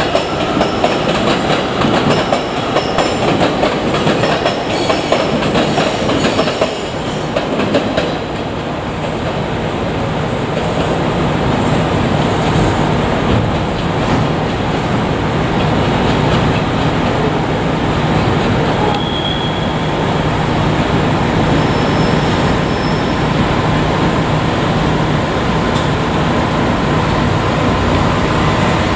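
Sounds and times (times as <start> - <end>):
train wheels on rails: 0.0 - 28.9
high squeals: 18.9 - 20.2, 21.5 - 23.3.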